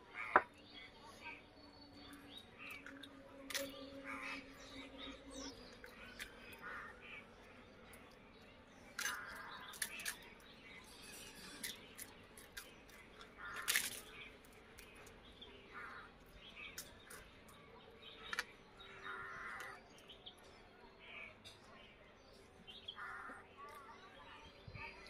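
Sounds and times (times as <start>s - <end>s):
people eating with hands: 0.7s - 20.6s
crows cawing: 6.0s - 7.3s, 9.0s - 10.2s, 13.4s - 14.0s, 15.7s - 16.2s, 18.9s - 19.8s, 23.0s - 23.4s.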